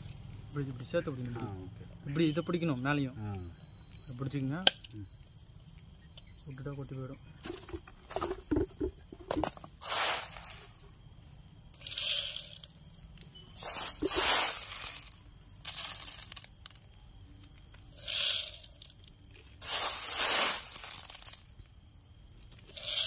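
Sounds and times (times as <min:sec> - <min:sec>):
beads poured into glass jar: 0:09.3 - 0:10.6, 0:11.8 - 0:12.7, 0:13.6 - 0:16.5, 0:18.0 - 0:19.0, 0:19.6 - 0:21.5.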